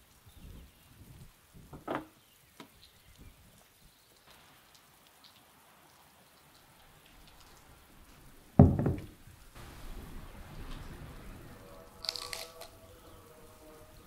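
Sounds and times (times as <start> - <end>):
light rain pattering: 0.0 - 14.0
plate thumping on wooden table: 8.6 - 9.1.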